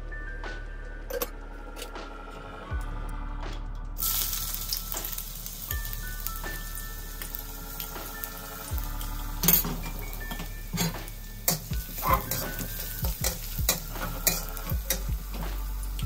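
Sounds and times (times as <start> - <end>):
shallots sizzling in oil: 4.0 - 16.0
metal spatula scraping a wok: 9.4 - 15.1.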